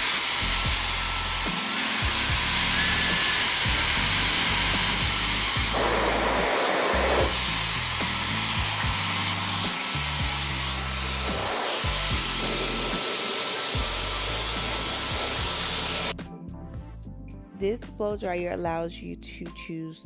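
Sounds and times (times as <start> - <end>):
blow dryer blowing: 0.0 - 16.2
background music with bass line: 0.4 - 6.4, 7.0 - 13.0, 13.8 - 19.8.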